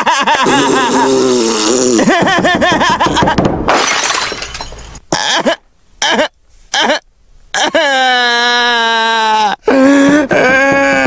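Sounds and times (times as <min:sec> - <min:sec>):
man laughing: 0:00.0 - 0:03.4, 0:05.1 - 0:07.0, 0:07.6 - 0:11.0
man blowing raspberries: 0:00.4 - 0:02.1
glass shattering on floor: 0:03.2 - 0:05.0.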